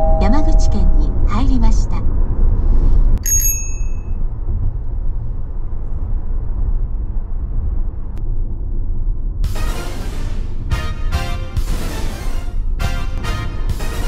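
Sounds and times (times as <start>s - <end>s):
car road and engine rumble: 0.0s - 10.7s.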